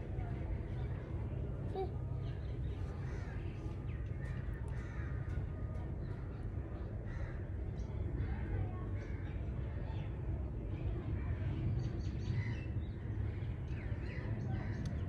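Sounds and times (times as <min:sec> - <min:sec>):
steady low rumble: 0:00.0 - 0:07.8.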